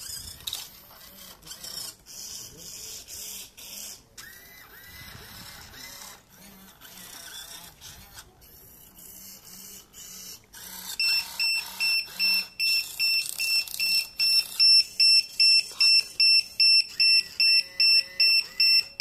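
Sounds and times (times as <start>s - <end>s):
electronic beeper short beeps: 11.0s - 19.0s.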